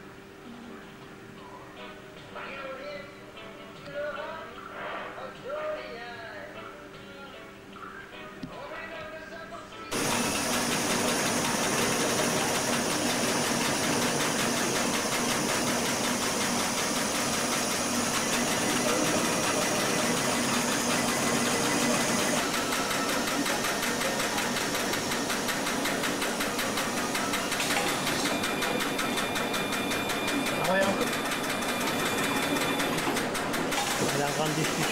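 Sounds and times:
high machine whine: 9.9 - 34.9
machine hum: 9.9 - 34.9
machinery clattering: 9.9 - 34.9.

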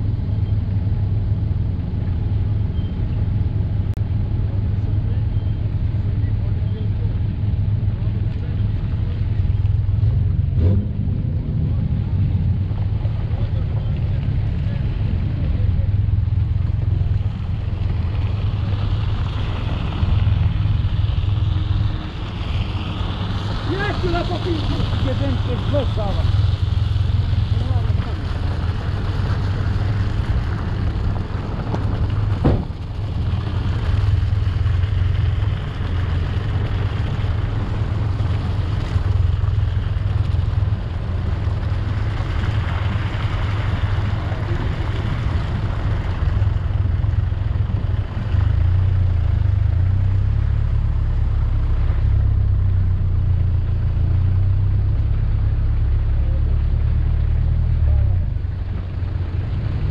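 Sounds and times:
off-road vehicle engine drone: 0.0 - 59.9
sharp knock: 32.4 - 32.7.

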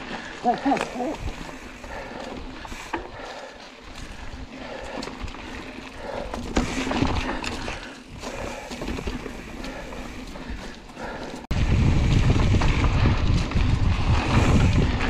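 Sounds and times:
bike tyres rumbling on dirt: 0.0 - 15.0
bike knocks and rattles: 4.9 - 10.6, 11.7 - 15.0.

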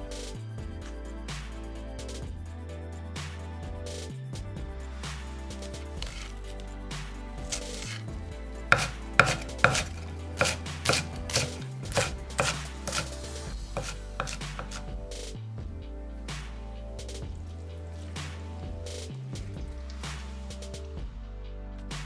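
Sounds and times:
knife chopping on wooden board: 8.7 - 13.1, 13.8 - 14.8.

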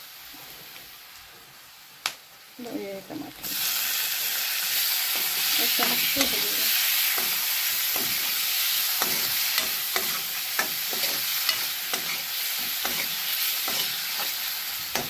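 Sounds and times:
vegetables sizzling in hot oil: 0.0 - 15.0
metal ladle scraping a pan: 5.2 - 15.0.

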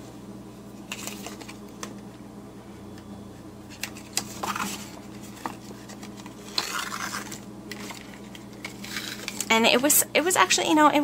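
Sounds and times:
steady low hum: 0.0 - 11.0
paper card taps and rustles: 3.7 - 9.5.

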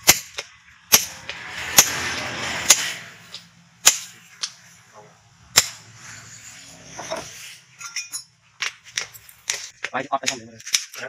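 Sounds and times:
hammer striking hot steel on anvil: 0.0 - 4.6, 5.5 - 6.0.

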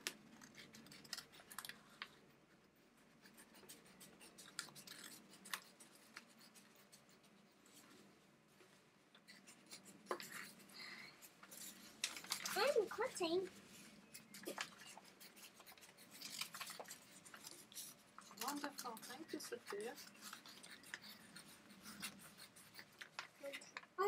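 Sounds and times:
scissors snipping paper: 0.0 - 2.1, 3.2 - 7.2, 11.5 - 13.4, 14.1 - 23.8.

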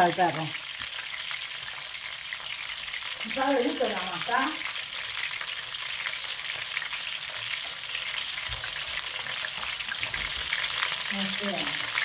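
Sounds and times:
chicken sizzling in hot oil: 0.0 - 12.0.

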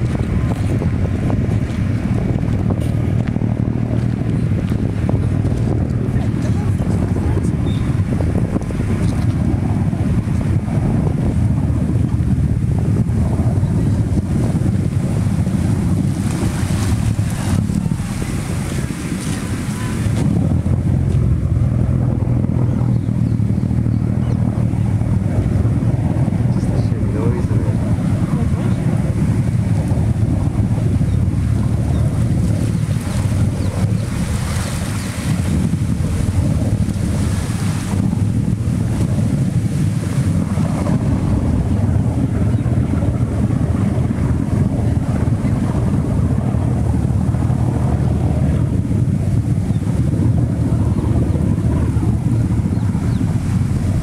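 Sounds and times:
whirlpool water churning: 0.0 - 54.0.

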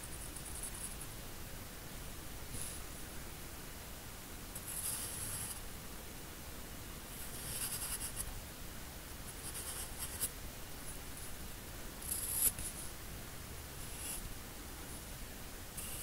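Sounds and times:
pencil scratching on paper: 4.6 - 5.6, 7.2 - 8.3, 9.3 - 10.3, 12.0 - 12.8, 15.8 - 16.0.

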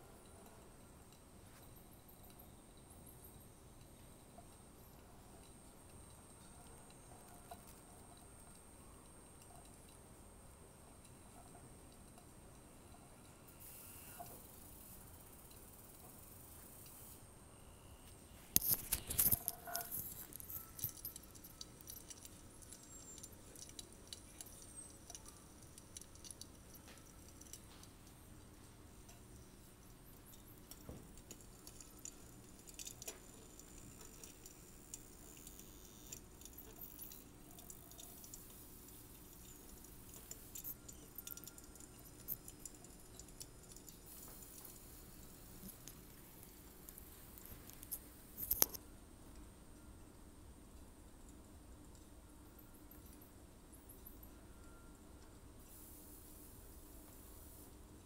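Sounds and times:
low steady hiss: 0.0 - 58.0
small hard objects jingling: 18.6 - 27.8.

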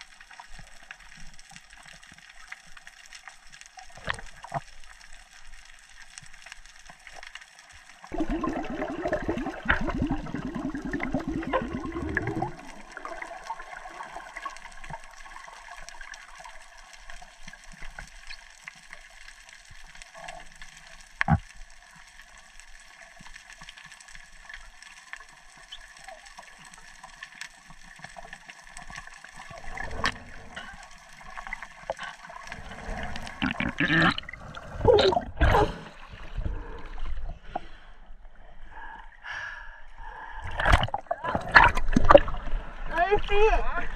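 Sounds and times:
gurgling rush of water and bubbles: 0.0 - 39.1, 39.9 - 43.9.

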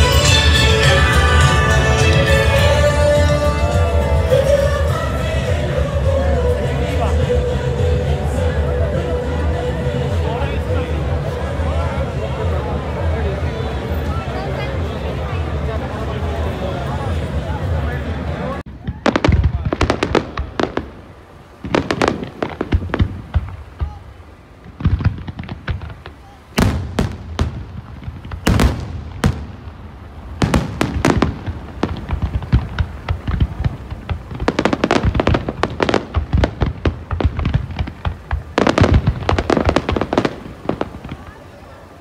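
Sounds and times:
fireworks bursting and crackling: 18.6 - 42.0.

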